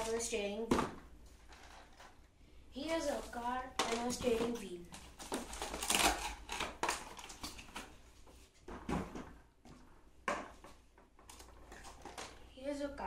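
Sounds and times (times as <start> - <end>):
cardboard packaging rustling: 3.0 - 8.1, 11.3 - 12.4.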